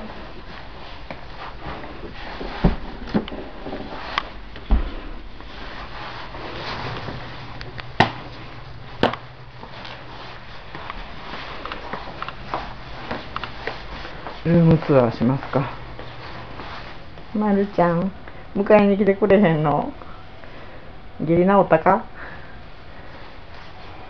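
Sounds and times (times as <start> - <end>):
low rustle: 0.0 - 18.4.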